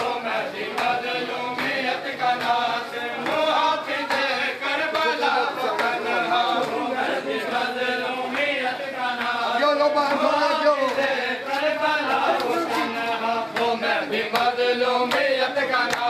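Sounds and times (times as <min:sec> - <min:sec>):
men chanting in unison: 0:00.0 - 0:16.0.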